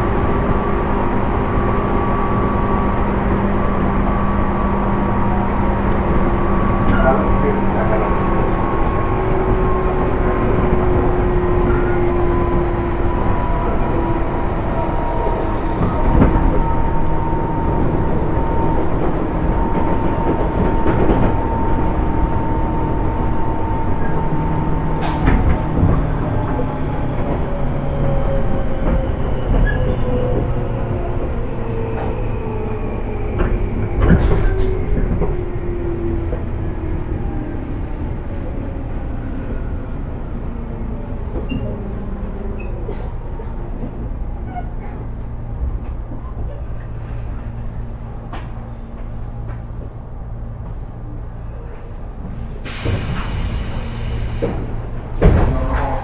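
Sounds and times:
wheel and track rumble: 0.0 - 56.0
rail joint clicks: 13.2 - 36.6, 41.2 - 51.3, 52.2 - 56.0.

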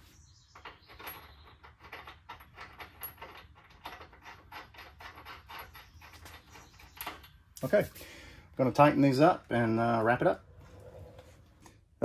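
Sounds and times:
metallic clicking of bolt and nut: 0.6 - 7.4.

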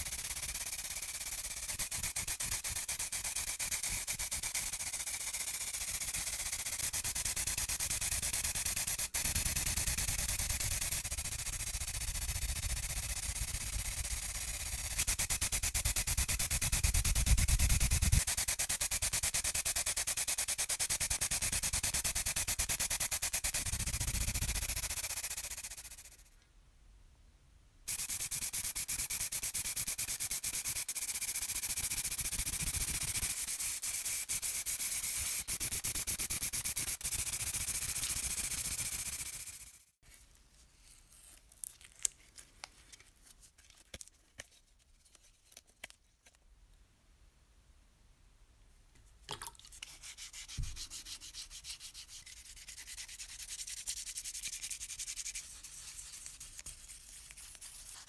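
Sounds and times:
spray paint hissing: 0.0 - 26.3, 27.9 - 39.9, 49.9 - 58.0.

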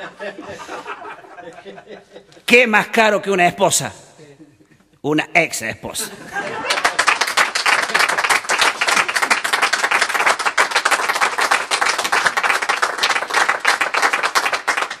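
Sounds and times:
audience applauding: 6.5 - 15.0.

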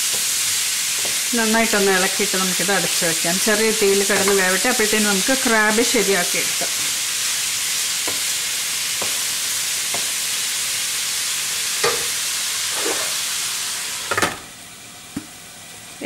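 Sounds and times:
onions sizzling in hot oil: 0.0 - 16.0
spatula clacking down: 0.9 - 1.3
glass lid clanking onto pan: 11.8 - 12.1
wooden spatula scraping pan: 12.7 - 13.2.

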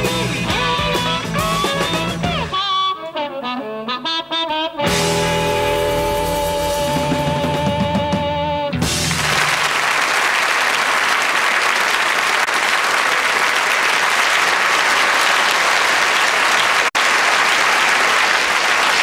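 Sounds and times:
audience applauding: 8.8 - 19.0.

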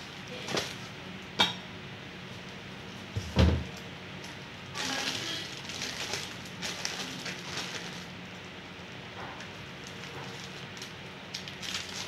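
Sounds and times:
plastic mailer bag crinkling: 4.8 - 8.1, 9.8 - 12.0.

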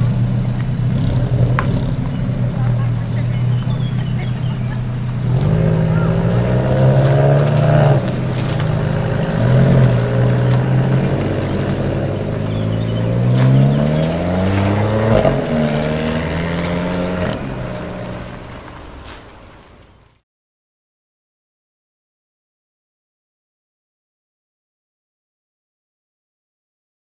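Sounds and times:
sports car engines accelerating: 0.0 - 19.8.

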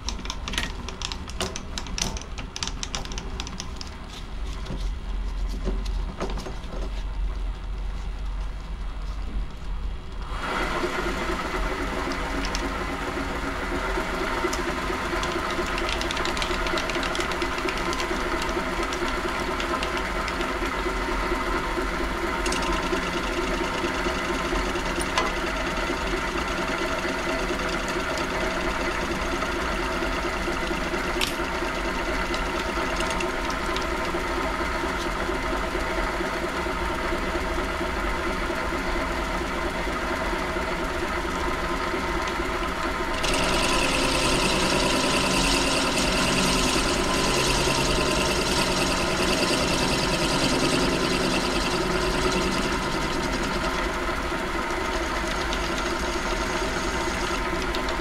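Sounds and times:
metal lathe whining: 41.7 - 58.0.

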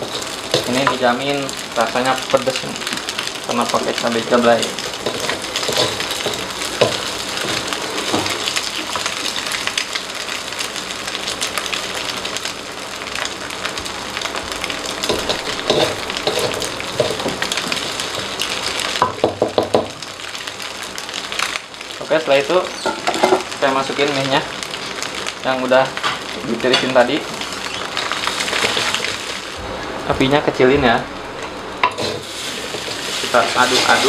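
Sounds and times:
food sizzling in oil: 0.0 - 34.0
spatula scraping a pan: 5.0 - 8.4, 15.1 - 17.3, 31.8 - 34.0.

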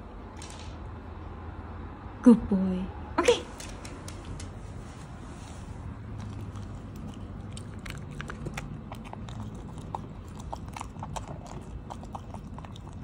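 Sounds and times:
dog chewing and crunching: 5.8 - 13.0.

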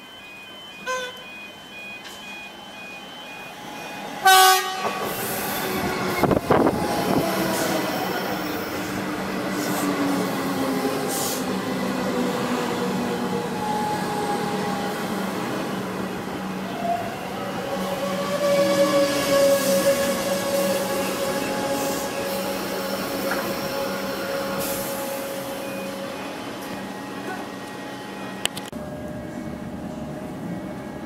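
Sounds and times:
train horn blast: 4.2 - 5.1.

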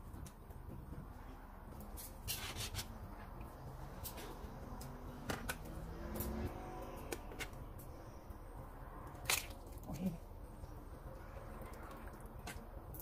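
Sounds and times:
liquid movement: 10.9 - 13.0.

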